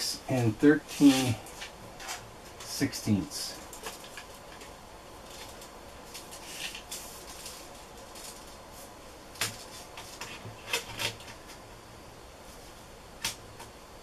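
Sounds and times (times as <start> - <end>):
tape measure scraping and rubbing: 0.9 - 1.4, 6.3 - 8.5.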